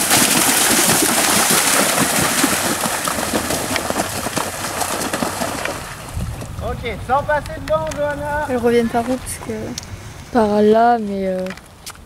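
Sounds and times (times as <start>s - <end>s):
horse hooves splashing in water: 0.0s - 6.7s, 7.6s - 9.6s.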